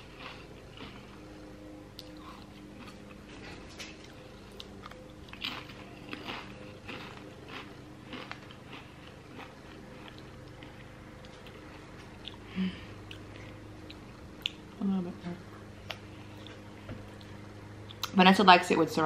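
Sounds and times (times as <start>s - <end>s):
wet crunchy chewing: 0.0s - 1.4s, 2.0s - 14.7s
faint steady hum: 0.0s - 19.0s.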